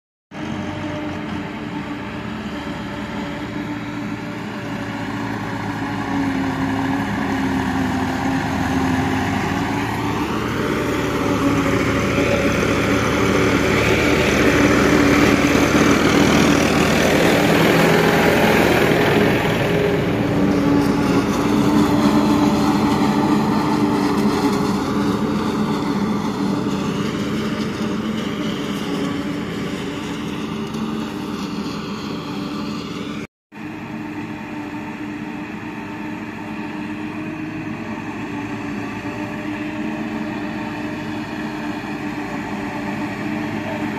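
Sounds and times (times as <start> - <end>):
cut crop blowing into trailer: 0.3 - 43.9
tractor engines under load: 0.3 - 43.9
forage harvester chopping maize: 4.6 - 33.0.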